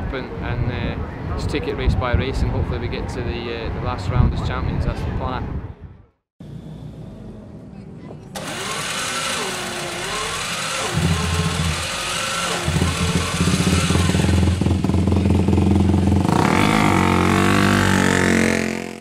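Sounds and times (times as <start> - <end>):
motorcycle engine starting and revving: 8.2 - 19.0
roller starter: 8.3 - 15.0.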